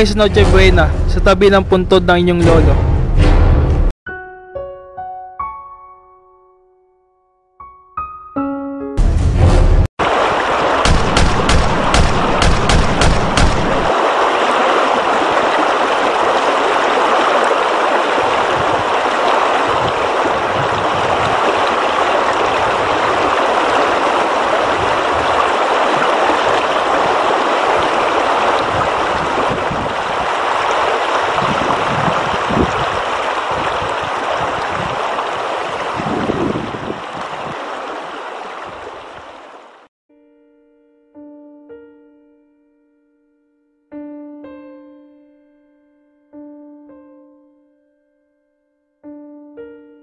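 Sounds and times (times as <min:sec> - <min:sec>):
river water rushing: 0:10.0 - 0:39.9
gunshots: 0:10.8 - 0:13.9.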